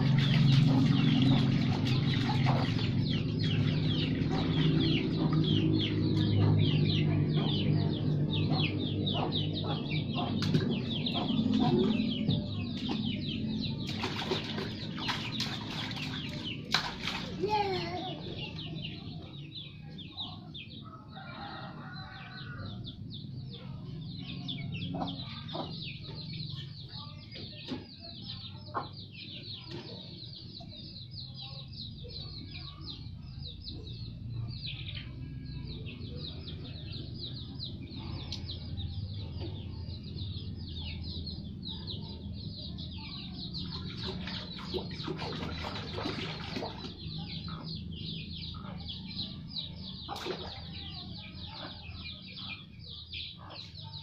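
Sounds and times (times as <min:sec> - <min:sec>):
water splashing in plastic basin: 0:00.0 - 0:06.3, 0:13.8 - 0:17.8, 0:43.7 - 0:47.0, 0:50.1 - 0:50.8
chickens clucking and peeping: 0:00.0 - 0:54.0.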